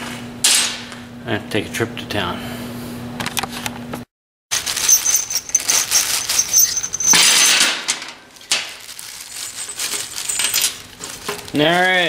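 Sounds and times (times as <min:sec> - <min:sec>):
plastic bag rustling: 0:04.5 - 0:07.4, 0:08.3 - 0:12.0
light metal clinks: 0:04.6 - 0:07.5
bolts clattering onto steel plate: 0:04.8 - 0:08.7.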